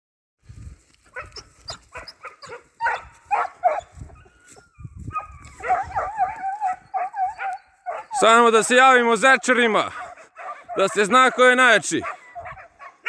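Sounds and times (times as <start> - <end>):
hound barking: 1.1 - 4.3, 5.1 - 8.7, 9.8 - 13.0.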